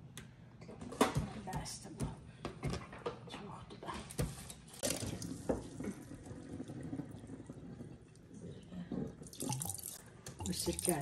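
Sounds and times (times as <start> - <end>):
tap water running into sink: 9.2 - 11.0.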